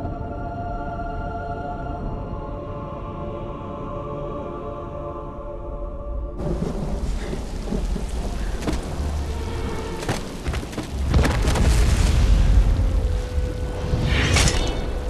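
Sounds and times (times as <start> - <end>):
deep continuous rumble: 5.6 - 15.0
sharp cracks and crashes: 9.9 - 13.0.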